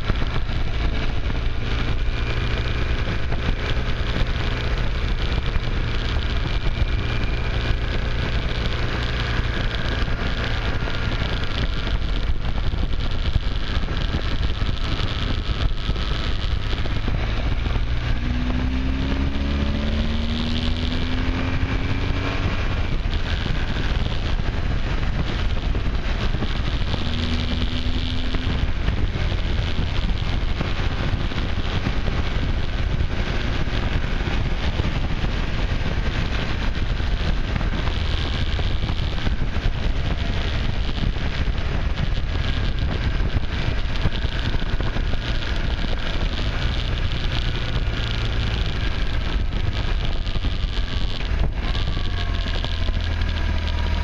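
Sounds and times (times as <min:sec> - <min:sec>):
vehicle engine running: 0:00.0 - 0:54.0
wind buffeting microphone: 0:00.0 - 0:54.0.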